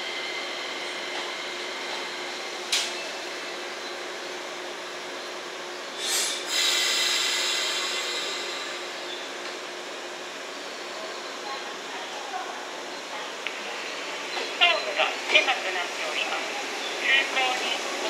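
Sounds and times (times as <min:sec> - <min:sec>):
electric train humming and whining: 0:00.0 - 0:18.0
sharp air hiss: 0:06.0 - 0:08.8.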